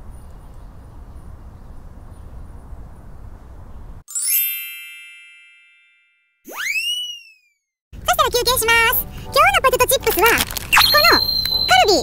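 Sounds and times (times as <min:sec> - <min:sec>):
bell-like chime: 0:04.1 - 0:06.4, 0:10.8 - 0:12.0.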